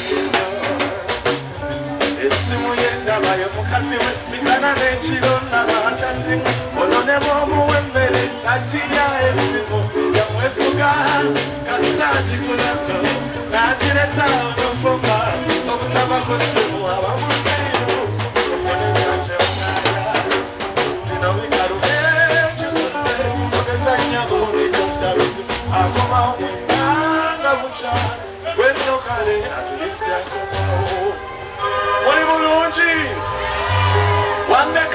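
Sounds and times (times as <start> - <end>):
drum kit: 0.0 - 27.2, 27.9 - 29.6, 30.4 - 31.1
man singing into a microphone: 0.0 - 31.2, 34.0 - 34.9
bass guitar line: 0.0 - 34.9.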